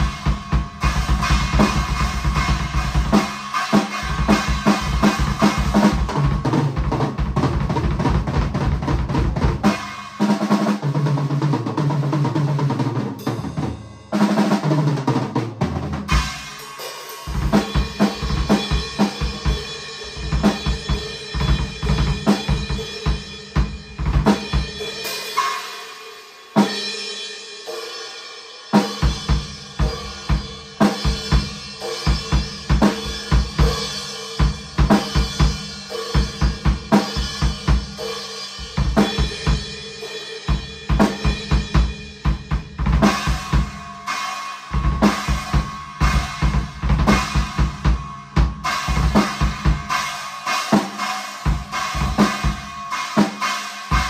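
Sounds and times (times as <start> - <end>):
cymbal crash ringing: 0.0 - 6.4, 16.1 - 23.5, 43.0 - 54.0
drum kit playing fast beat: 0.0 - 54.0.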